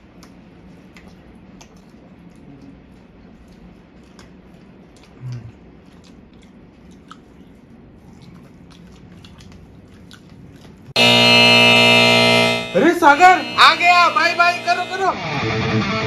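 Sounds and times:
faint chewing: 0.0 - 11.0
short low hum: 11.0 - 15.1
loud buzzing tone: 11.0 - 15.2.

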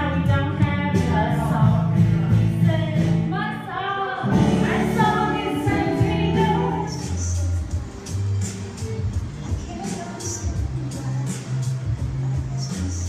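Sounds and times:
woman singing into a microphone: 0.0 - 7.6
backing track over loudspeakers: 0.0 - 13.0.

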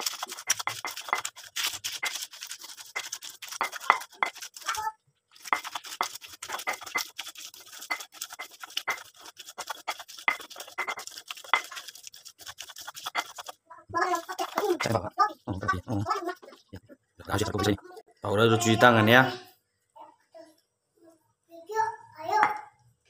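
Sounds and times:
stone pestle grinding paste: 0.0 - 16.7.

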